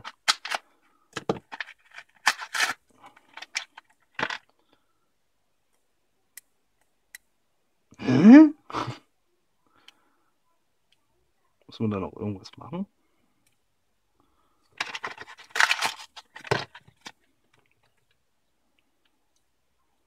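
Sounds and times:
packaging crackling and tearing: 1.5 - 3.9, 14.8 - 17.1.

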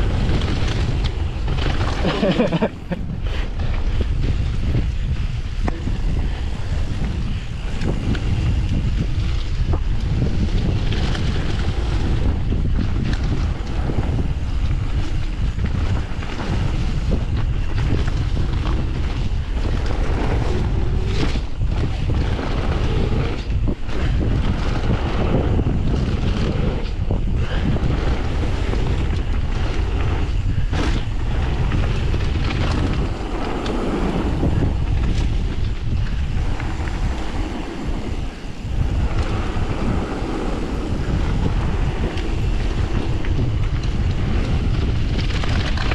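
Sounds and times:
bike knocking and rattling: 0.0 - 45.9
tyres rolling on gravel: 0.0 - 45.9
wind rushing over microphone: 0.0 - 45.9.

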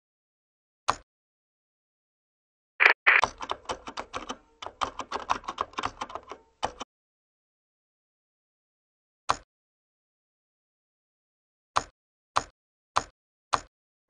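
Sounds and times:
typing on computer keyboard: 3.2 - 6.9.

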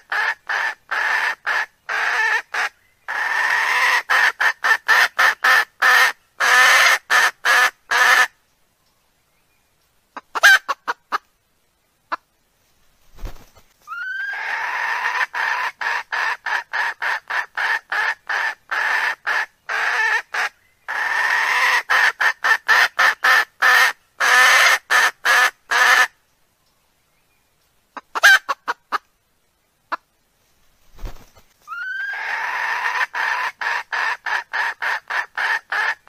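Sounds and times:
recorded hen clucking: 0.0 - 8.3, 10.1 - 11.3, 12.1 - 12.3, 13.9 - 26.1, 27.9 - 29.1, 29.9 - 30.1, 31.7 - 36.0.

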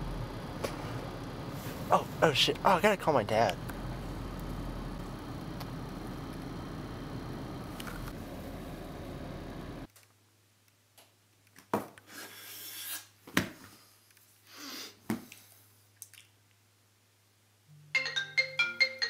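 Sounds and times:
low steady hum: 0.0 - 9.9
marimba-like plucked melody: 17.9 - 19.0.

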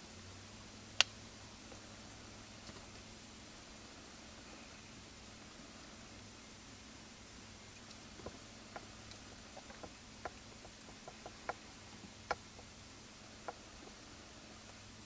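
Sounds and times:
steady hiss: 0.0 - 15.0
faint clicks and ticks: 7.7 - 12.7.

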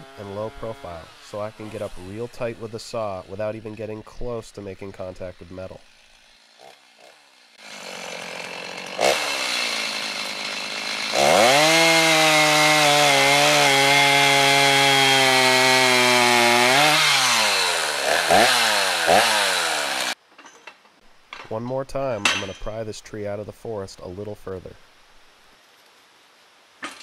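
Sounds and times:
chainsaw cutting a log: 0.0 - 3.9, 5.0 - 20.2.

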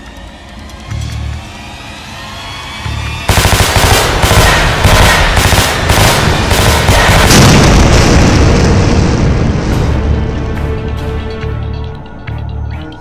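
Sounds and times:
automatic rifle fire: 3.3 - 7.7
heavy blast: 3.3 - 10.4.

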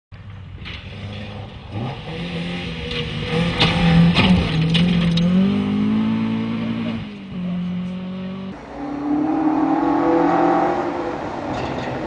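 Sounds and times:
rally car engine passing: 1.1 - 12.0.

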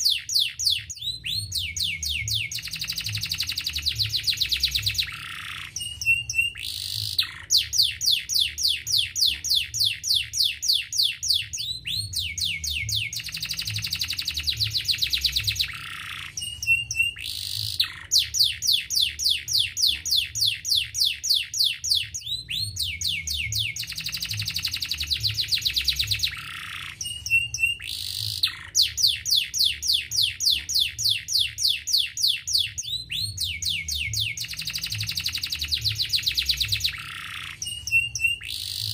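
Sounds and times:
canary singing: 0.0 - 38.9.

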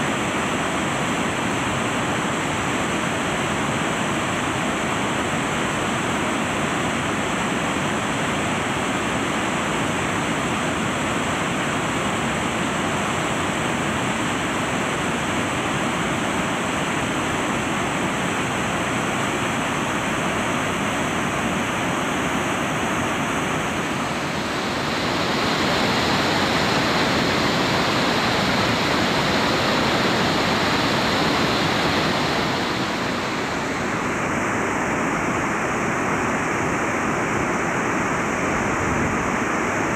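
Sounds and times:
river rushing over boulders: 0.0 - 39.9.

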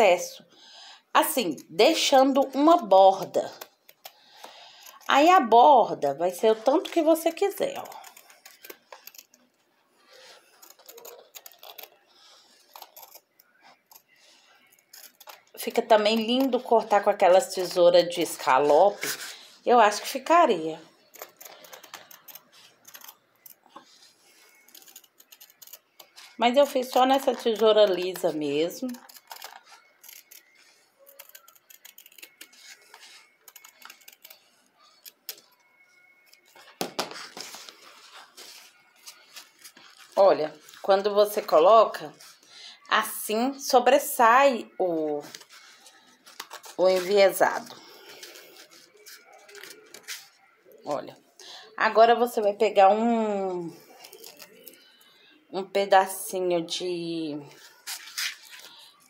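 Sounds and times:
scissors snipping fabric: 6.6 - 9.4, 10.5 - 12.0, 12.7 - 14.1, 14.8 - 16.6, 21.1 - 23.6, 24.5 - 35.4.

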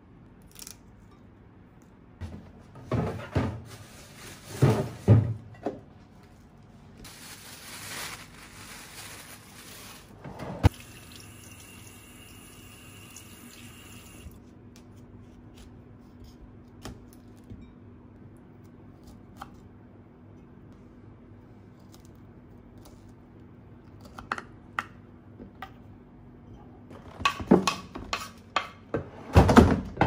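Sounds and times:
fridge thumps and knocks: 4.5 - 5.8.

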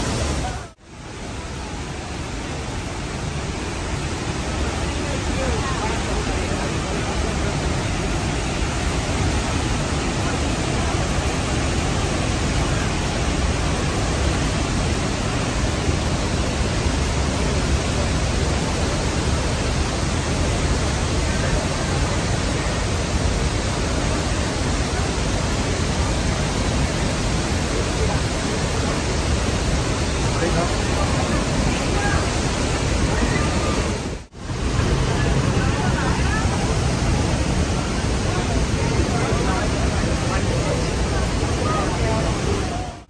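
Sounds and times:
rush of falling water: 0.0 - 43.0.

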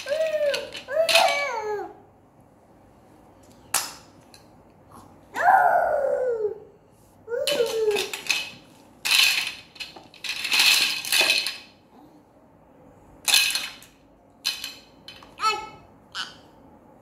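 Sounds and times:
plastic toy pieces clattering: 0.0 - 1.7, 7.4 - 11.8, 13.2 - 15.5
toddler vocal sound: 0.0 - 2.0, 4.9 - 6.7, 7.3 - 8.2, 15.4 - 16.5.

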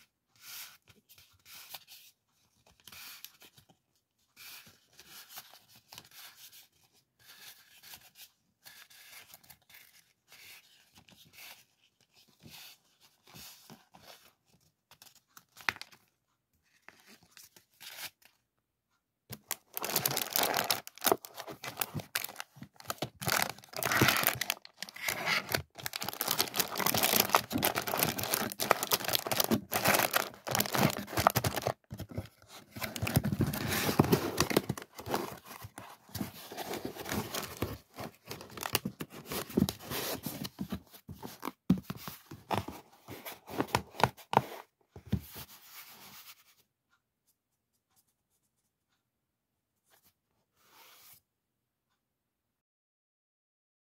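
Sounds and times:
cellophane crinkling in cardboard box: 19.3 - 40.2
paper sheet rustling: 19.3 - 44.6.

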